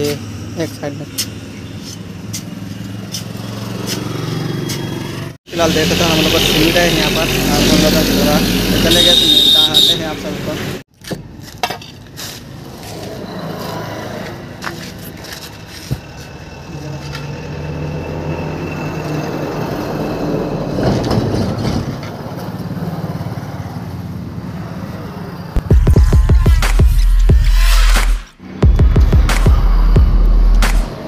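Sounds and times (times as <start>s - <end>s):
loud music: 25.6s - 31.0s.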